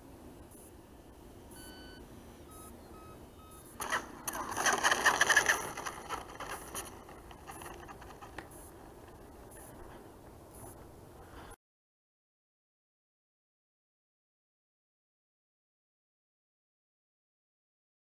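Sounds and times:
faint short beeps: 1.5 - 4.0
rc jet rolling out on runway: 3.8 - 9.3.

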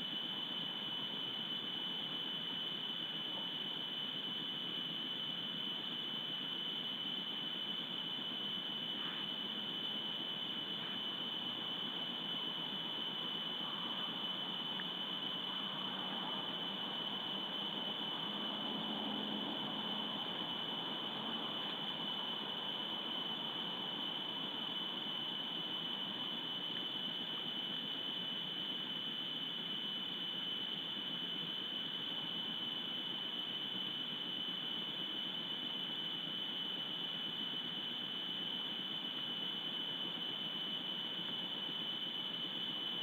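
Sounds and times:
constant hiss: 0.0 - 43.0
high-pitched whine: 0.0 - 43.0.

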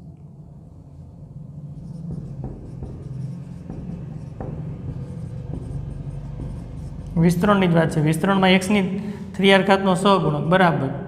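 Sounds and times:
low hum: 0.0 - 10.5
marker scratching on whiteboard: 1.7 - 8.9
marker tapping: 1.8 - 8.7.

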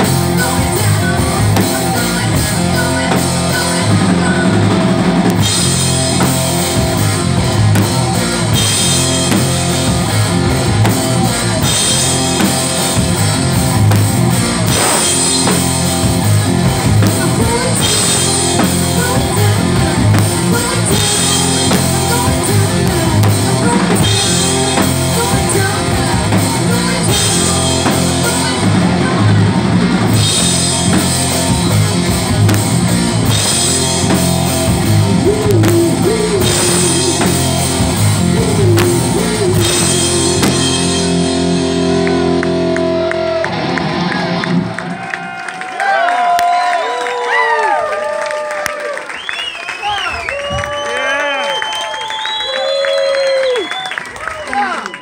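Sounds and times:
person singing: 0.0 - 5.0, 17.0 - 29.4, 35.0 - 41.8
drum kit beat: 0.0 - 45.0
distorted electric guitar: 0.0 - 45.3
bass guitar: 0.0 - 49.0.

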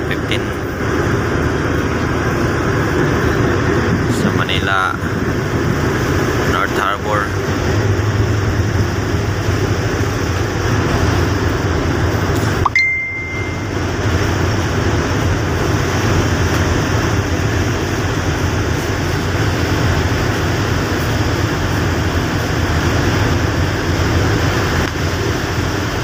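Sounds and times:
low rumble: 0.0 - 25.4
rushing outdoor noise: 0.0 - 26.0
high single-pitched ding: 12.6 - 13.8.

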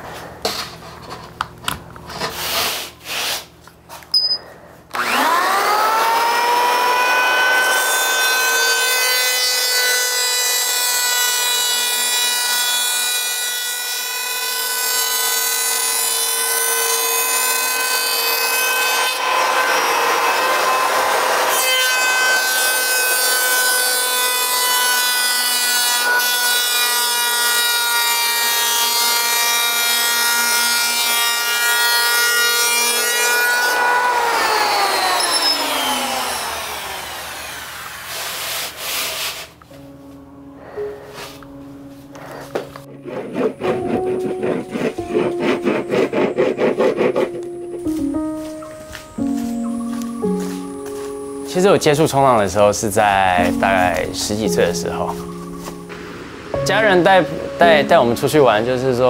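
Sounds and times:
electric hand planer whining: 4.9 - 39.5, 42.1 - 51.5
hiss of planer cutting: 34.1 - 39.6.

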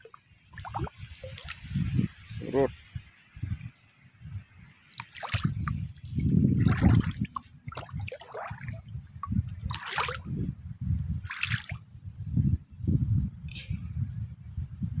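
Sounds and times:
footsteps squelching through mud: 9.7 - 10.2.

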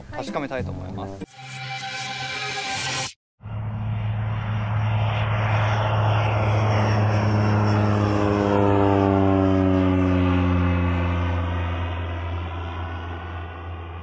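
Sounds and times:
propeller plane droning past: 3.4 - 14.0.

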